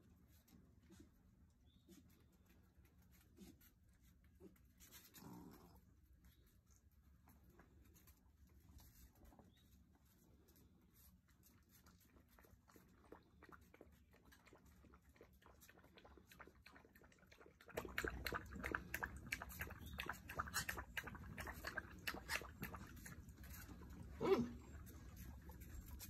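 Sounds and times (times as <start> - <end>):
puppies scuffling: 18.8 - 26.0.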